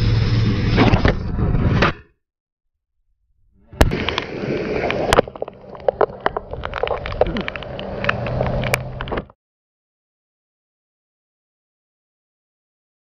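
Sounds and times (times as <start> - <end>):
vehicle engine hum: 0.0 - 1.5, 3.9 - 9.3.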